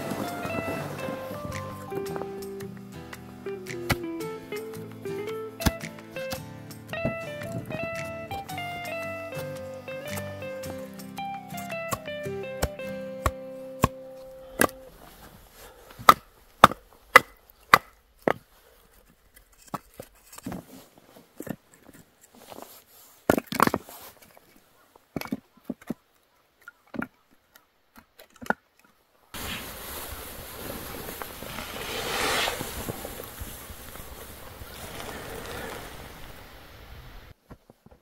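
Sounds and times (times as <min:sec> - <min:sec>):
steady rushing noise: 0:29.4 - 0:37.3.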